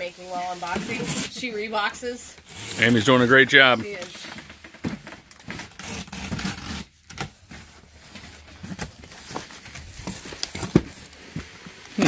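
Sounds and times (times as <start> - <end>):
box cutter slitting tape: 5.4 - 7.3.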